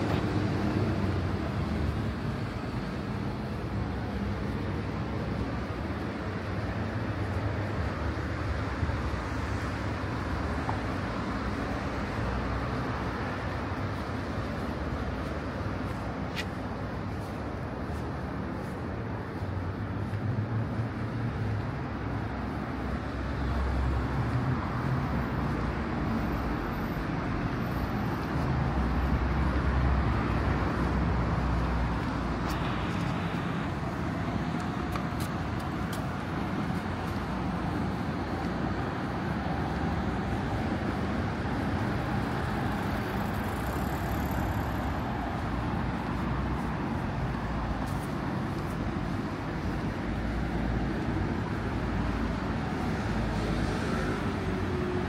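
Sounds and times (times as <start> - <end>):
cars passing on a road: 0.0 - 55.0.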